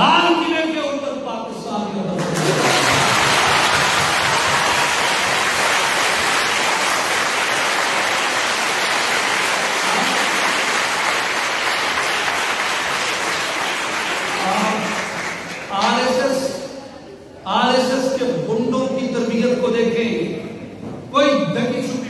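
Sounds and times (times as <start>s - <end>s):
audience applauding: 2.2s - 15.9s.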